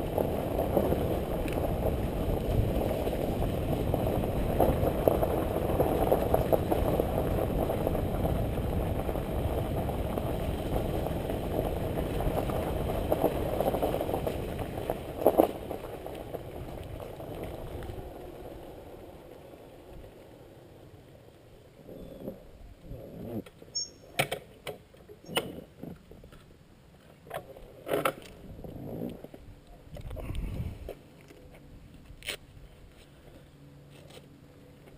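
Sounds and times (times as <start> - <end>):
motorcycle riding wind noise: 0.0 - 20.2, 28.4 - 30.9.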